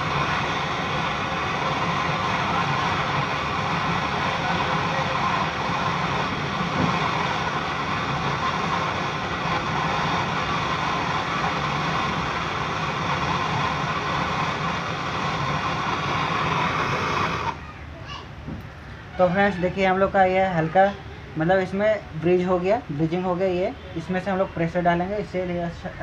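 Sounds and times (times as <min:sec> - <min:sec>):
gas torch hissing: 0:00.0 - 0:17.6.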